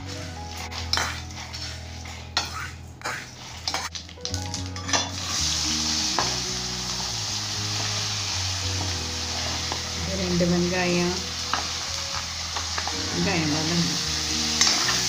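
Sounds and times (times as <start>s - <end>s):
steel ladle scraping and stirring: 0.0s - 4.0s
onions sizzling in hot oil: 4.9s - 15.0s.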